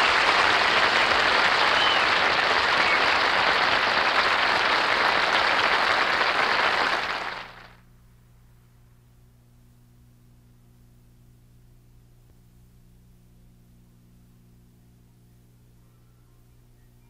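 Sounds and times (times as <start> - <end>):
audience applauding: 0.0 - 7.8
faint low hum: 0.0 - 17.0.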